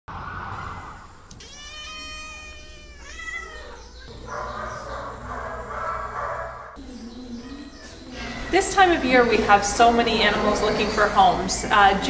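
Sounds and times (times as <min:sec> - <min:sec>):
cat meowing: 0:01.3 - 0:04.2, 0:07.3 - 0:08.1.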